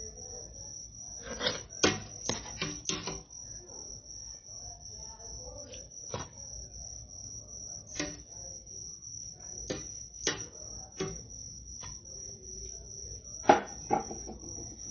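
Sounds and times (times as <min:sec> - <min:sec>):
ladle knocking on metal pot: 0:13.4 - 0:14.8.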